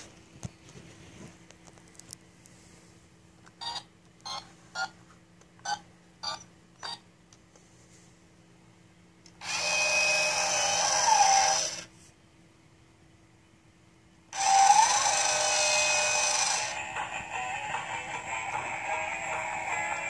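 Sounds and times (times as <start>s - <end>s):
toy electronic sound effects: 9.4s - 11.9s, 14.3s - 20.0s.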